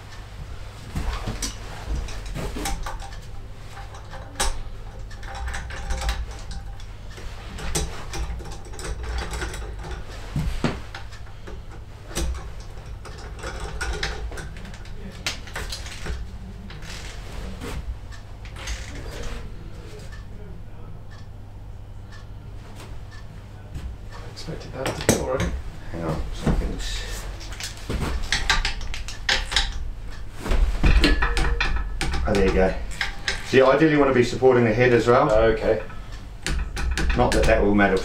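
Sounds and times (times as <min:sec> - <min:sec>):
metal tools knocking: 0:01.0 - 0:17.1, 0:26.4 - 0:30.2, 0:30.8 - 0:38.0.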